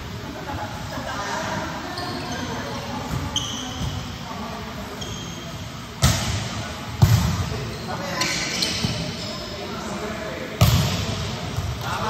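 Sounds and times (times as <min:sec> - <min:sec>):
faint voices in a hall: 0:00.0 - 0:12.0
shoes squeaking on gym floor: 0:01.8 - 0:04.2, 0:04.9 - 0:05.8, 0:07.7 - 0:09.7.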